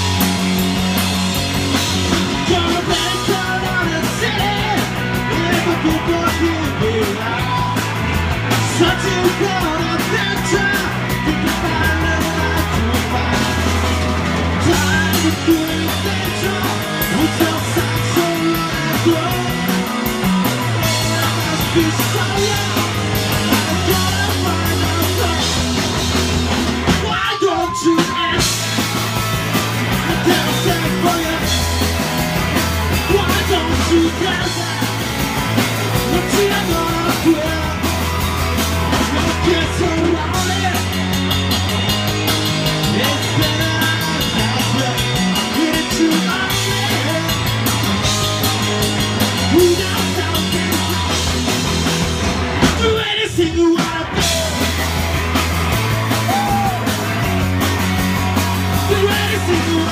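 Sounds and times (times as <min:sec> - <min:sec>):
drum kit: 0:00.0 - 0:59.9
electric guitar: 0:00.0 - 0:59.9
person singing: 0:02.2 - 0:07.8, 0:08.7 - 0:13.8, 0:14.6 - 0:19.9, 0:20.8 - 0:25.7, 0:29.9 - 0:31.9, 0:32.9 - 0:35.2, 0:35.9 - 0:38.2, 0:42.8 - 0:47.6, 0:49.4 - 0:51.3, 0:58.7 - 0:59.9.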